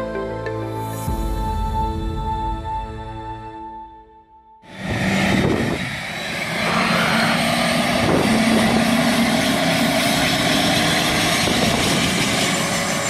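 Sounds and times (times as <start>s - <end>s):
helicopter turbine and rotor: 4.7s - 13.0s.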